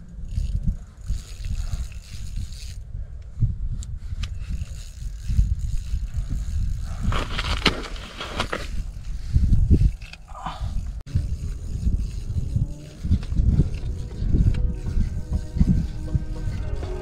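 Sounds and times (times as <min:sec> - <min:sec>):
wind buffeting microphone: 0:00.0 - 0:17.0
rustling and scraping: 0:04.1 - 0:17.0.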